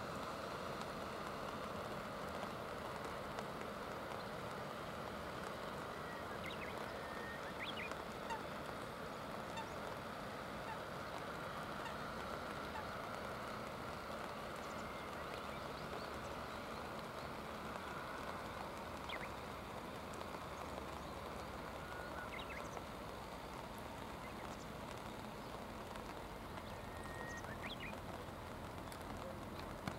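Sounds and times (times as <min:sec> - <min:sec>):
rain: 0:00.0 - 0:29.9
river water hissing: 0:00.0 - 0:29.9
faint bird calls: 0:05.4 - 0:29.9.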